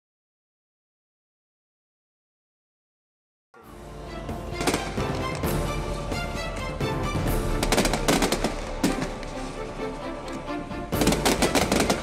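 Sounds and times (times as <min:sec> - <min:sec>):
background music: 0:03.6 - 0:12.0
fireworks bursting: 0:04.6 - 0:05.8, 0:07.2 - 0:09.8, 0:10.9 - 0:12.0.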